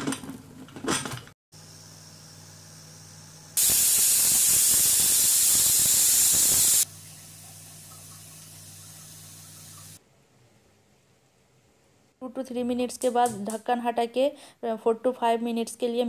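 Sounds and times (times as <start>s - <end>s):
pressure cooker steam hissing: 3.6s - 6.9s.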